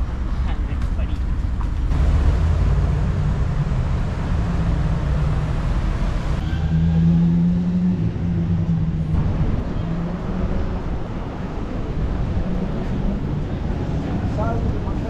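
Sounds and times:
vehicle engine running: 0:00.0 - 0:06.4.

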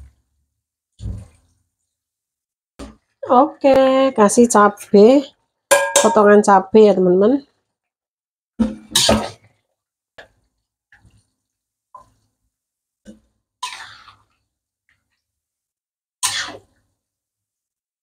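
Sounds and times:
metal ladle knocking and clinking in wok: 0:05.7 - 0:06.3
ladle scraping and stew splashing: 0:13.6 - 0:14.4.

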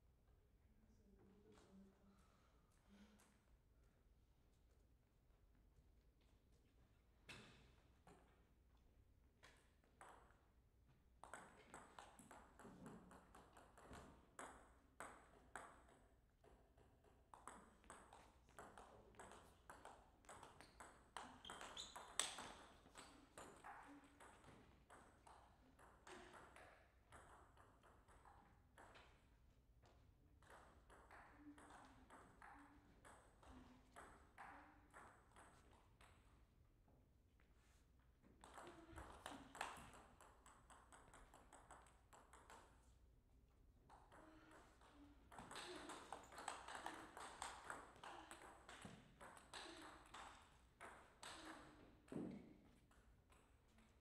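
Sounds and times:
table tennis ball knocking: 0:43.9 - 0:53.0.

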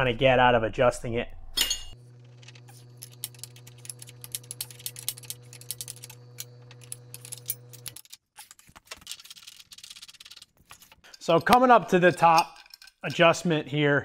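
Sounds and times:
steady low hum: 0:00.0 - 0:08.0
metallic clicks of steel parts: 0:01.6 - 0:13.5.

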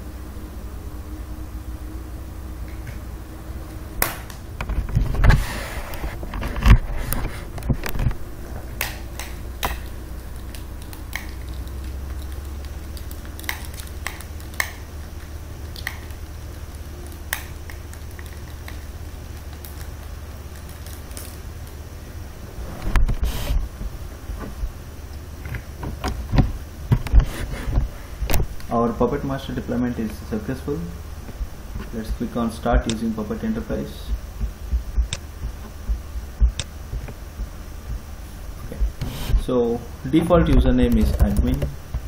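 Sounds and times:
steady low hum: 0:00.0 - 0:42.0
sharp clicks and knocks: 0:34.1 - 0:39.4.

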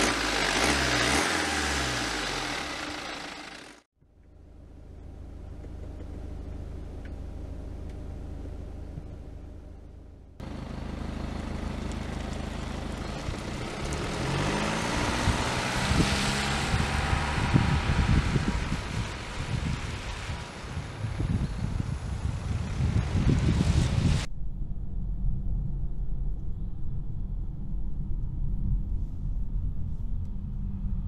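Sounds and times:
car accelerating away: 0:00.0 - 0:03.7, 0:10.4 - 0:23.8
car engine humming: 0:00.0 - 0:24.3
wind on microphone: 0:13.2 - 0:31.0.

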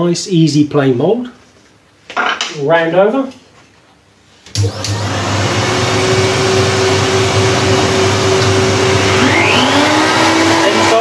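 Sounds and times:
router motor running: 0:04.6 - 0:11.0.

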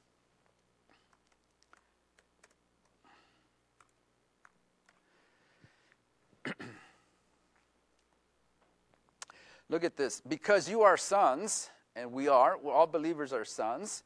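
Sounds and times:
laptop keyboard typing: 0:00.4 - 0:03.0, 0:03.7 - 0:05.1.

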